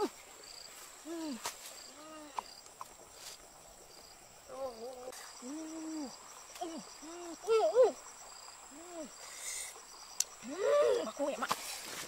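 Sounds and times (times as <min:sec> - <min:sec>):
insects buzzing: 0:00.0 - 0:12.0
woman making ooh sounds: 0:04.5 - 0:08.0, 0:10.4 - 0:11.5.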